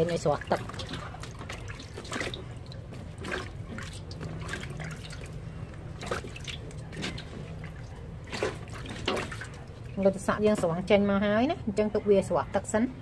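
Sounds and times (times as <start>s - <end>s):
water splashing and dripping: 0.0s - 10.1s.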